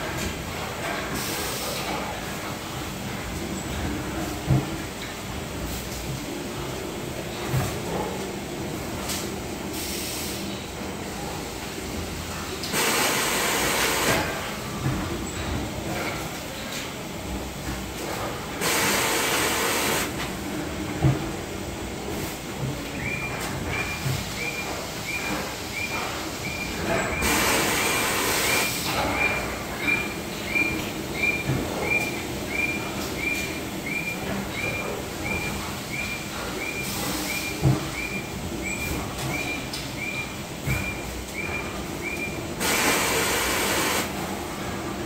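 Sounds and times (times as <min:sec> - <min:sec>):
hissing bursts: 0:12.7 - 0:14.2, 0:18.6 - 0:20.1, 0:27.2 - 0:28.8, 0:42.6 - 0:44.1.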